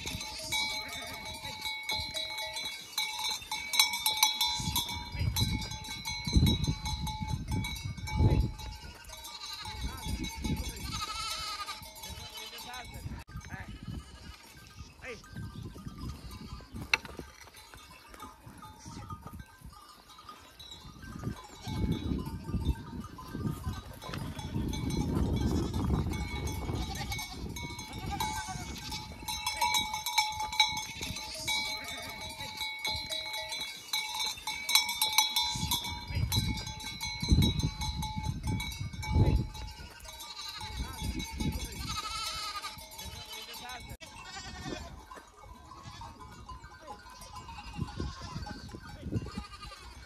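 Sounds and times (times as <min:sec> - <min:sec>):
goats bleating: 0:00.0 - 0:06.6, 0:08.3 - 0:15.3, 0:19.9 - 0:36.6, 0:39.4 - 0:50.0
bells tinkling: 0:00.0 - 0:50.0.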